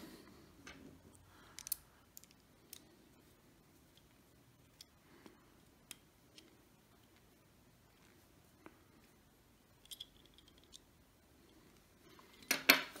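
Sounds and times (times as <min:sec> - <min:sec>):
small metal parts clicking: 0:01.4 - 0:02.9, 0:09.8 - 0:10.9.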